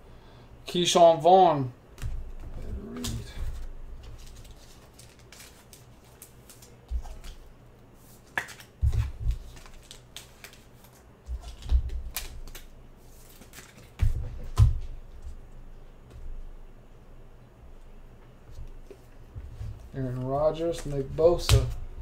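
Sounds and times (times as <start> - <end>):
cards clicking and flicking: 2.0 - 7.4, 8.2 - 14.0, 20.7 - 21.8.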